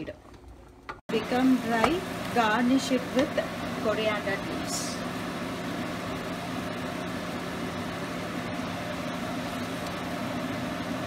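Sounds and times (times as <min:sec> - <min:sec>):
fan-like hum and hiss: 0:00.8 - 0:11.0.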